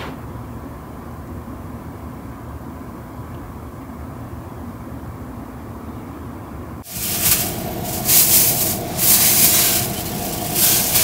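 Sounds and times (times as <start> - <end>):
vehicle rumble: 4.9 - 11.0
loud hiss: 6.8 - 11.0.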